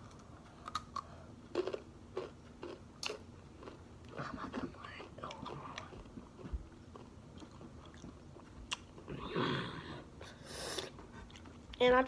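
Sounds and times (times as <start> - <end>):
chewing crunchy chips: 0.0 - 9.2.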